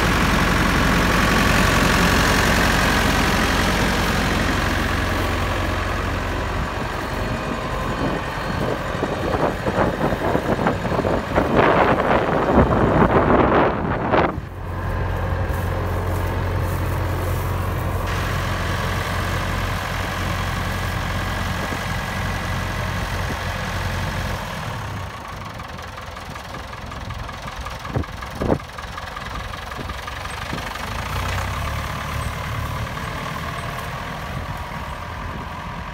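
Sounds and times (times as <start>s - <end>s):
tractor diesel engine idling: 0.0s - 35.9s.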